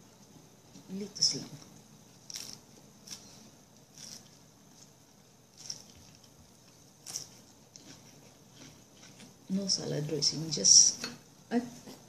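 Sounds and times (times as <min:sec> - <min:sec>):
crisp chewing crunches: 0:02.2 - 0:09.4.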